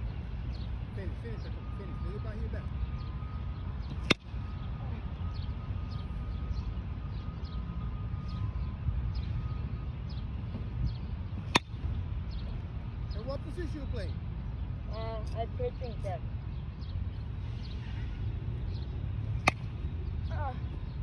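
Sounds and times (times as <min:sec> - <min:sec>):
bat cracking ball: 0:11.4 - 0:11.8, 0:19.4 - 0:19.8.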